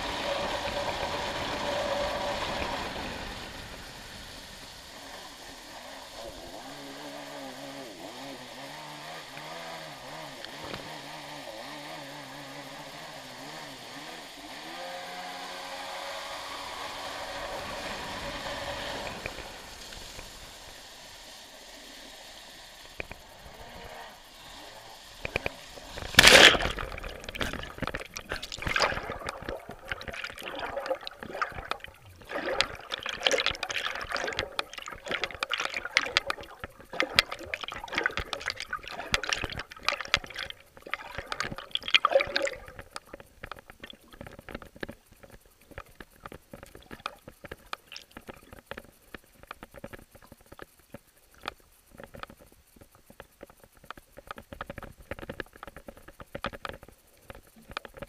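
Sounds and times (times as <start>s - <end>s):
underwater sloshing and gurgling: 0.0s - 8.5s, 16.9s - 58.0s
faint ticks and crackles: 0.0s - 58.0s
loud splash: 25.8s - 42.9s.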